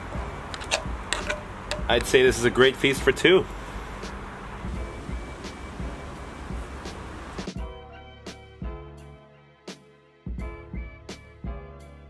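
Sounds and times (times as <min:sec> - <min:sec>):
background music with drum hits: 0:00.0 - 0:02.4, 0:04.0 - 0:09.1, 0:09.7 - 0:11.9
outdoor background noise: 0:00.0 - 0:07.6.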